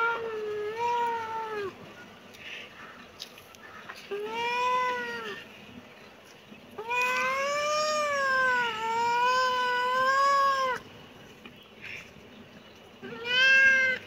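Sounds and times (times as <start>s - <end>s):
cat meowing: 6.8s - 10.8s, 13.0s - 14.0s.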